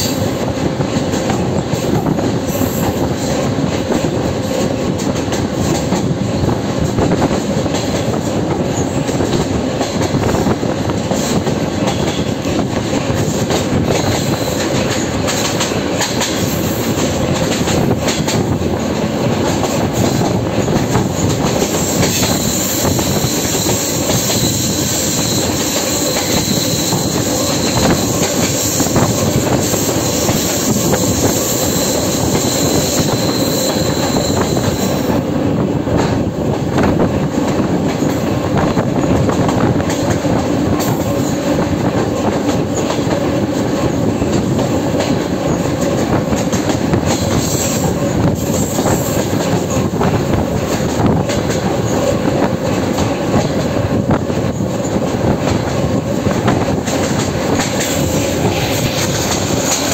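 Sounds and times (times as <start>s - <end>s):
train wheels rumbling on rail: 0.0s - 59.9s
thin high squeal: 22.2s - 28.0s, 31.6s - 35.0s.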